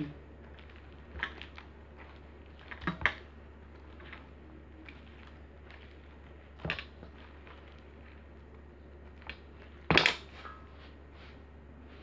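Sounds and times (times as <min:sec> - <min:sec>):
dough squishing and rubbing: 0:00.0 - 0:12.0
steady low hum: 0:00.0 - 0:12.0.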